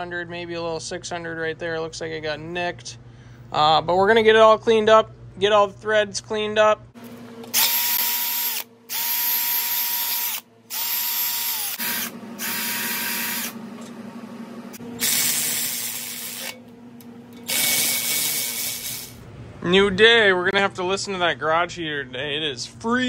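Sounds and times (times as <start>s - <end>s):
power tool whining: 7.4s - 16.7s, 17.3s - 19.2s.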